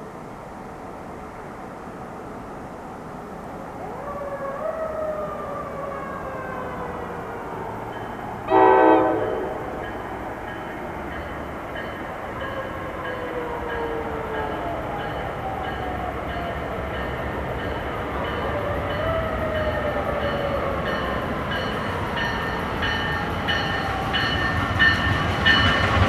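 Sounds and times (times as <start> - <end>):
fire truck siren wailing: 3.8 - 9.9, 18.4 - 22.4
train horn blast: 8.5 - 9.8.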